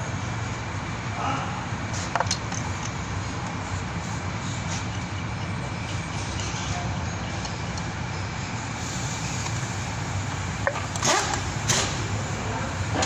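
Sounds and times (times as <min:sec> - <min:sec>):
sharp clicks in engine bay: 0:02.0 - 0:03.6, 0:10.6 - 0:12.1.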